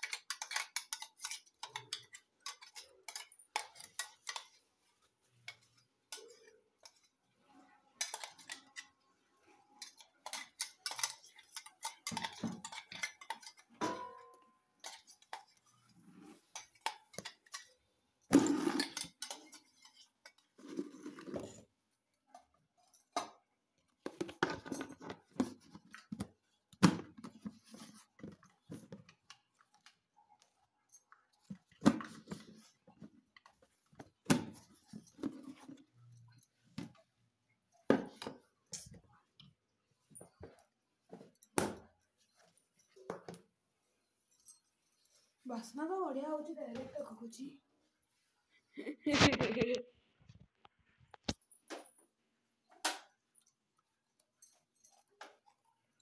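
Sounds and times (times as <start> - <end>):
metal utensils clattering on pots: 0.0 - 7.2, 8.0 - 9.0, 9.7 - 21.5.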